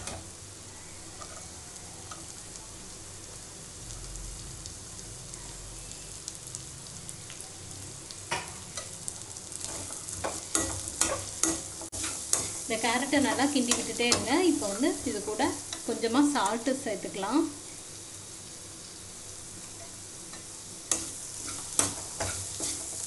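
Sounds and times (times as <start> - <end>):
carrots sizzling in oil: 0.0 - 23.0
spoon scraping a pan: 1.2 - 2.3, 9.6 - 14.9, 19.7 - 23.0.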